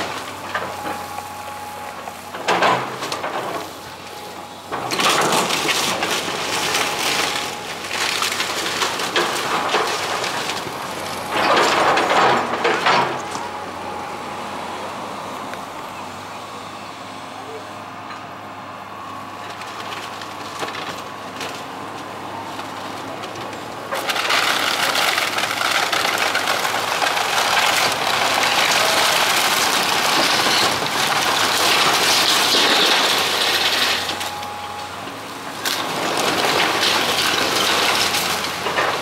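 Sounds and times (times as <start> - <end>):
excavator engine hum: 0.0 - 39.0
wood crunching and splintering: 4.7 - 13.5, 19.4 - 39.0.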